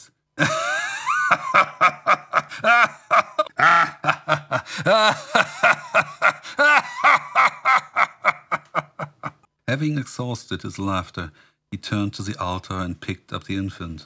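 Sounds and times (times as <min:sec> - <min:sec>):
man laughing: 0:00.4 - 0:09.5.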